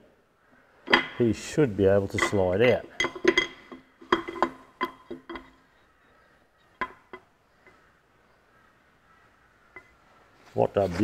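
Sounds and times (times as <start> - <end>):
metal clinking: 2.1 - 5.8.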